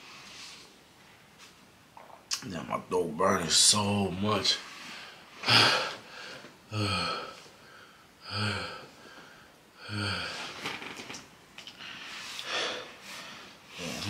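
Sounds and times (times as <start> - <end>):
man groaning: 6.7 - 7.4, 8.2 - 8.9, 9.8 - 10.6.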